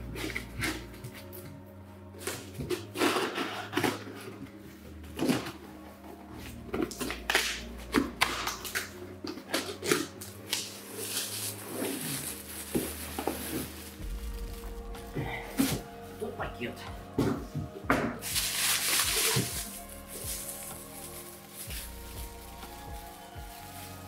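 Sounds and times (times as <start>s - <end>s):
packing tape ripping: 2.2s - 4.3s, 6.8s - 16.0s, 18.2s - 24.0s
plastic bag crinkling: 8.4s - 16.1s, 18.2s - 24.0s.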